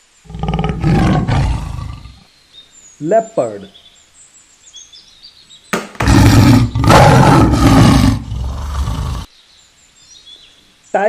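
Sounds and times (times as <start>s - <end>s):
leopard roaring and growling: 0.3s - 2.2s, 6.0s - 9.3s.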